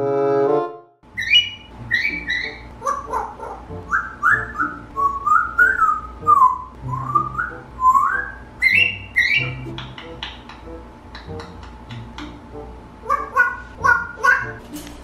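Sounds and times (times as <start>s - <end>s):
parrot whistling gliding notes: 1.1s - 10.4s
background music: 1.6s - 15.0s
parrot clicks: 9.7s - 12.4s.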